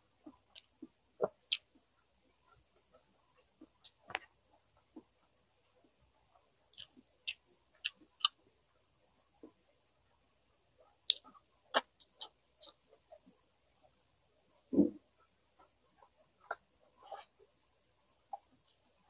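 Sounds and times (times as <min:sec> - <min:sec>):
wet mouth clicks while chewing: 0:06.8 - 0:08.4.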